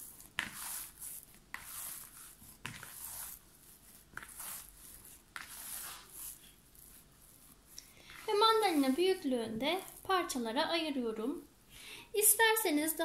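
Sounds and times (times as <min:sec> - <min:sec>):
dough squishing and tearing: 0:00.0 - 0:10.1.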